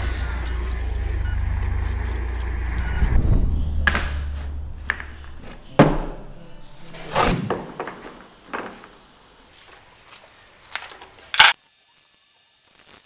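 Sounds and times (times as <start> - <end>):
low rumbling drone: 0.0 - 7.2
sharp metallic clinks: 3.8 - 5.1.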